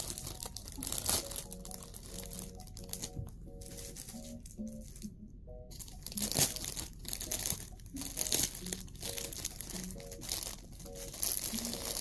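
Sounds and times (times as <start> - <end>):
packaging crinkling and rustling: 0.0 - 5.1, 5.7 - 12.0.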